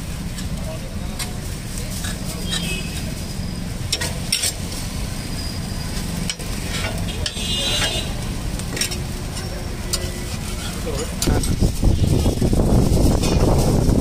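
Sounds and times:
food sizzling on a griddle: 0:00.0 - 0:14.0
metal spatula scraping and tapping: 0:00.2 - 0:04.9, 0:05.9 - 0:11.7.

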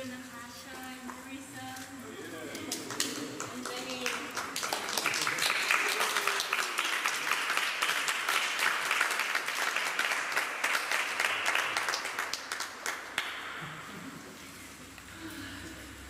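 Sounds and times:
audience applauding: 0:02.2 - 0:14.0.

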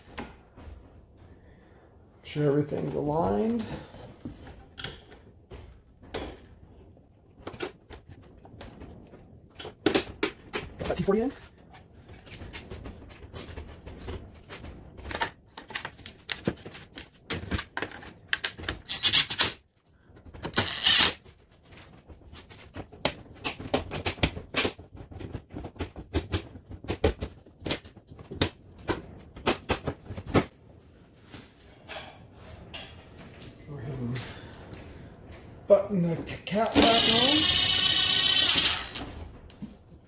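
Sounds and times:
plastic parts clicking and rattling: 0:07.4 - 0:30.4, 0:36.6 - 0:39.2.

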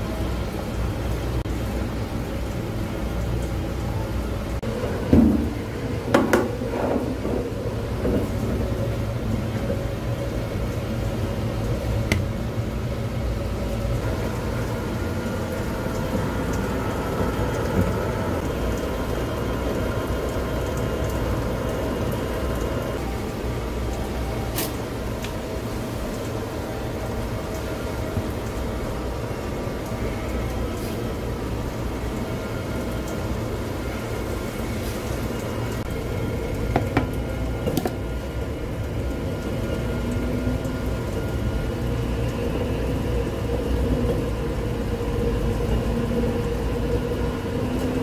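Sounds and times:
mill humming and rushing: 0:00.0 - 0:48.0.

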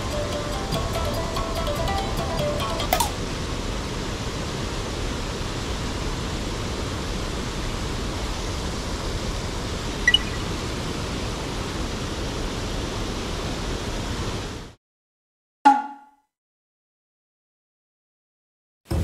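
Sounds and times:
waterfall rushing: 0:00.0 - 0:14.6
brief high blip: 0:15.6 - 0:16.3.

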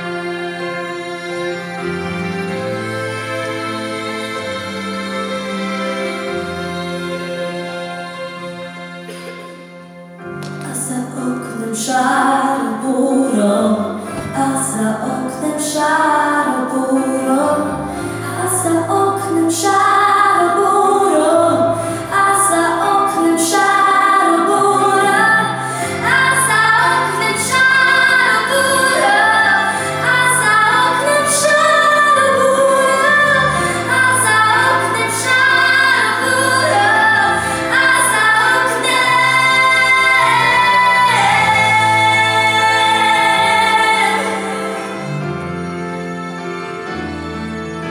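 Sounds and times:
instrumental accompaniment: 0:00.0 - 0:11.8, 0:16.7 - 0:47.9
woman singing into microphone: 0:10.6 - 0:44.8.

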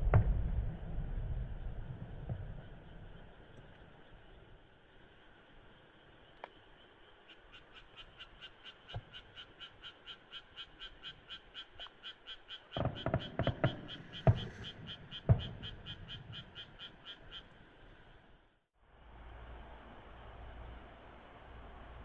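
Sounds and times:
low steady hiss: 0:00.0 - 0:13.2, 0:13.8 - 0:22.0
frogs croaking: 0:02.4 - 0:18.4.

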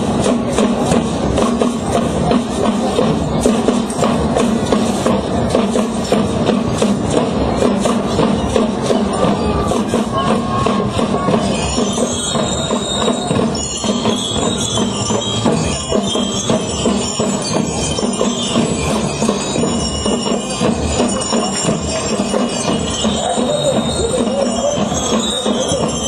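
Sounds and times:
marching band playing: 0:00.0 - 0:26.0
ringing bell lyre tones: 0:08.6 - 0:26.0.

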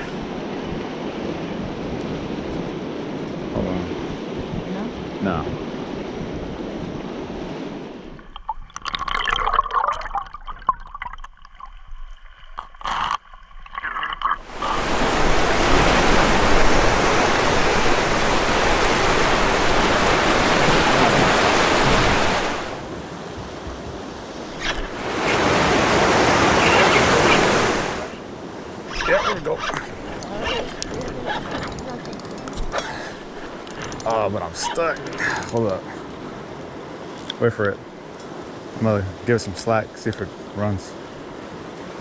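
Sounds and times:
surf washing against rocks: 0:13.3 - 0:37.2.

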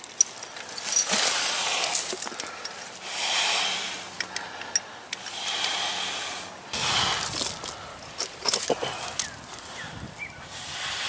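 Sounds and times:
light chain clicks: 0:00.0 - 0:02.9
man breathing heavily: 0:00.4 - 0:11.0.

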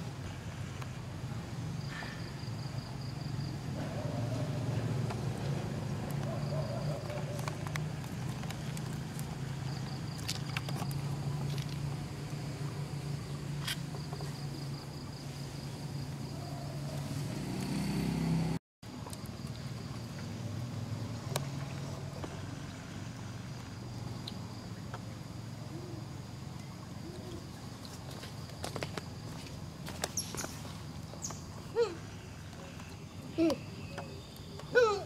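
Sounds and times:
engine running hum: 0:03.5 - 0:15.0, 0:15.9 - 0:34.7.

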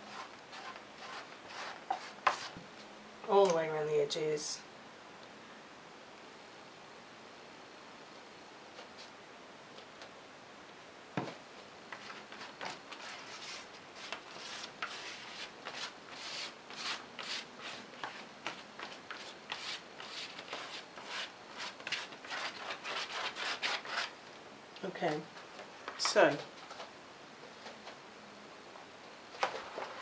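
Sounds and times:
sandpaper rubbing: 0:00.0 - 0:02.6, 0:12.0 - 0:24.1.

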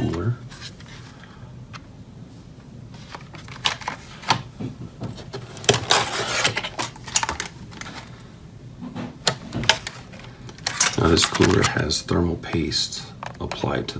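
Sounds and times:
plastic packaging rustling: 0:02.9 - 0:08.3, 0:09.4 - 0:12.0.

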